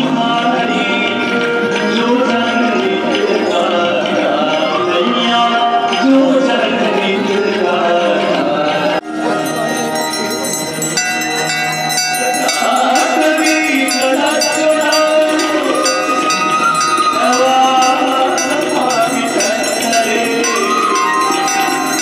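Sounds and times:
devotional song singing: 0:00.0 - 0:22.0
bells ringing: 0:09.1 - 0:22.0.

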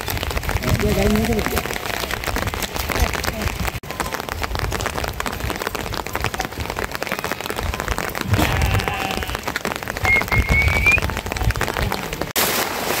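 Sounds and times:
rain pattering: 0:00.0 - 0:13.0
rising whistle-like sound: 0:10.0 - 0:11.1.

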